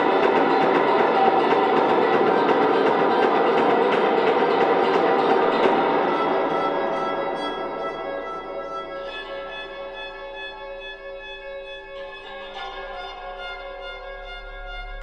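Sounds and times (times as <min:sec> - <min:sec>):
held bowed string notes: 0:00.0 - 0:15.0.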